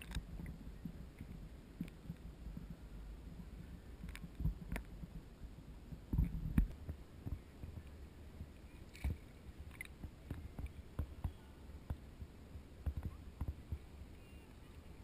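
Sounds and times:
faint low hum: 0.0 - 15.0
waves sloshing against camera: 0.0 - 15.0.

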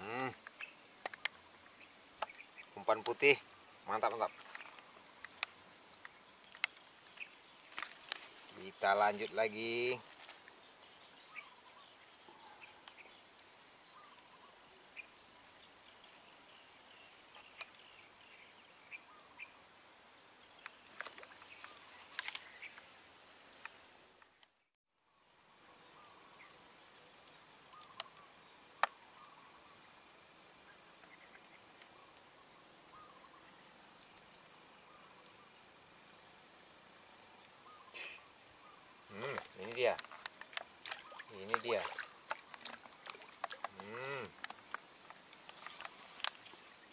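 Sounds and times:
high-pitched insect chorus: 0.0 - 46.9.

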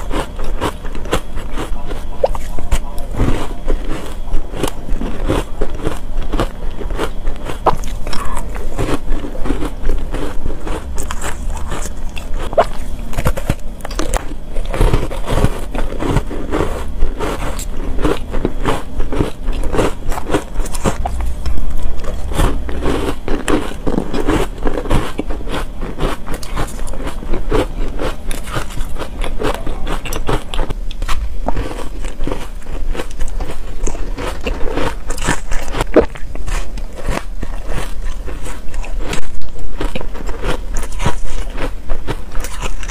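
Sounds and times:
crunching and chewing ice: 0.0 - 42.9.

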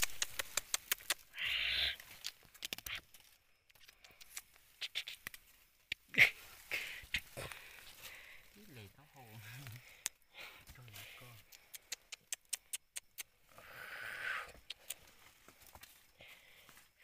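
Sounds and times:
civet hissing: 0.0 - 3.0, 3.9 - 8.8, 9.4 - 15.0.

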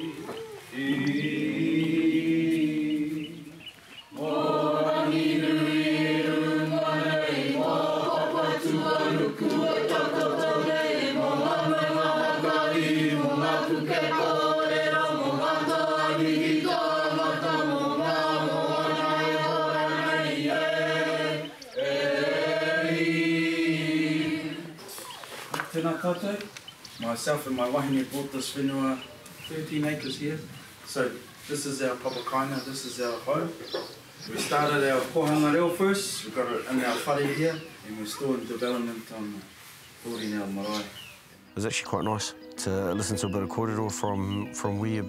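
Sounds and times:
group of voices chanting: 4.2 - 24.8.

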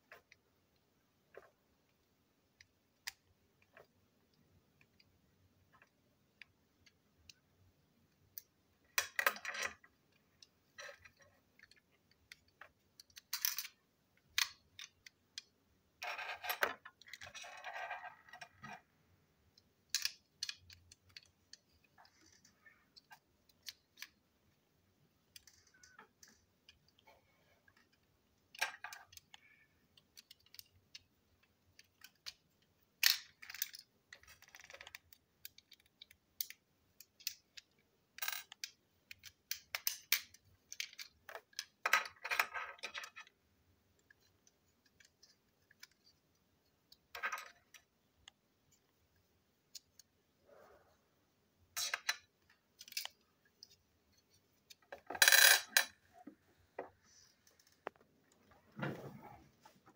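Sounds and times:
small plastic pieces clicking: 10.4 - 15.6, 19.8 - 24.2, 27.7 - 43.4.

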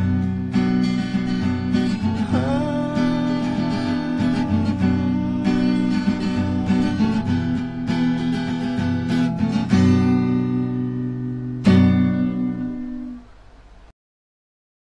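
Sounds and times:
strummed acoustic guitar chords: 0.0 - 13.4.

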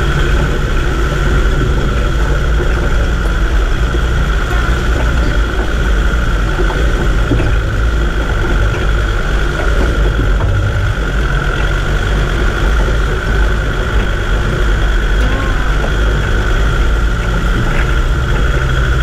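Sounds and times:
low engine drone: 0.0 - 19.0
thin whine: 0.0 - 19.0
tyres crunching over gravel: 0.0 - 19.0.

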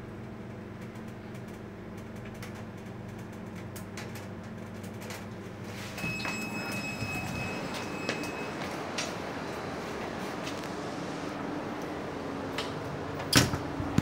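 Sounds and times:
elevator drive humming: 0.0 - 14.0
high-pitched beep: 6.0 - 8.6.

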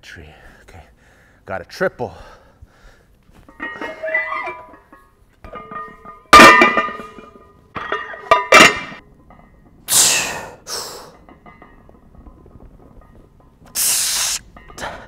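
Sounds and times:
metal weight plates clanging: 3.4 - 9.9, 11.0 - 15.0.

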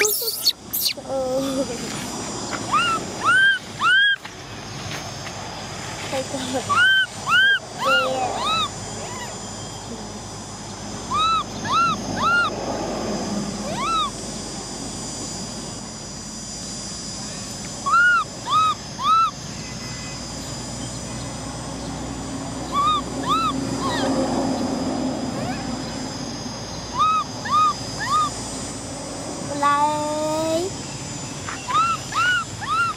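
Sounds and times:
baby monkey whimpering: 0.0 - 1.6, 2.7 - 4.2, 6.7 - 9.4, 11.1 - 12.6, 13.6 - 14.2, 17.8 - 19.4, 22.6 - 24.2, 25.3 - 25.9, 26.9 - 28.4, 31.5 - 32.9.

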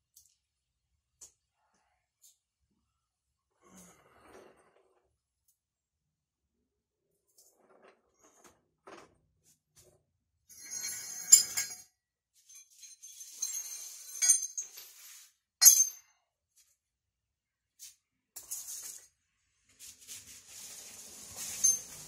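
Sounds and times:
metal tools clinking and rattling: 10.5 - 16.1.

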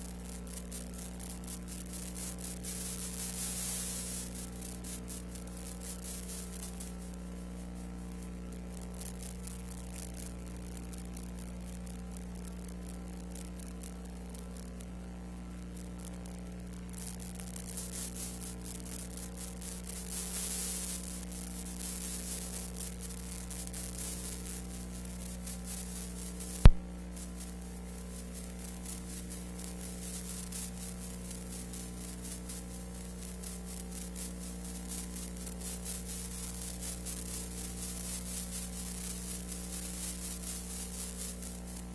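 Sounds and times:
electrical hum and hiss: 0.0 - 41.9
sharp click: 26.6 - 26.9.

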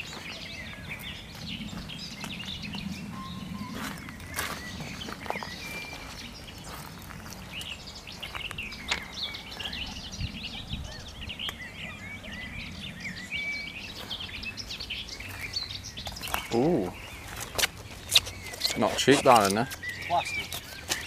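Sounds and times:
footsteps crunching on gravel: 0.0 - 3.1, 3.7 - 9.8, 13.8 - 21.0
songbirds chirping and singing: 0.0 - 21.0.

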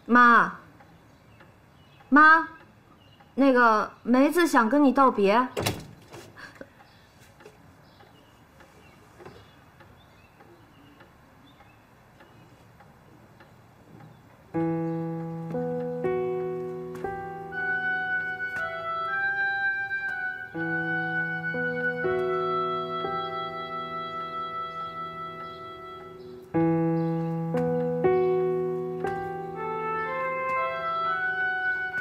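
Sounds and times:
soft piano music: 14.4 - 32.0.

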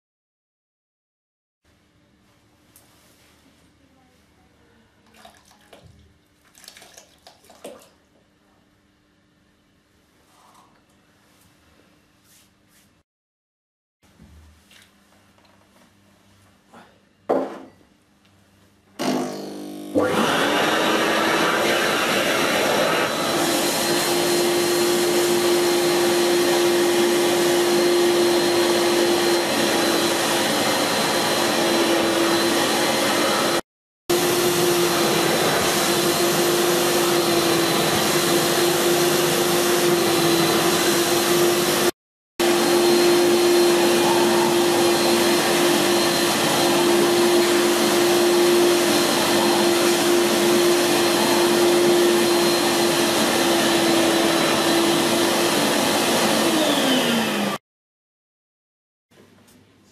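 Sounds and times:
carpet cleaner humming and whining: 19.0 - 57.6.

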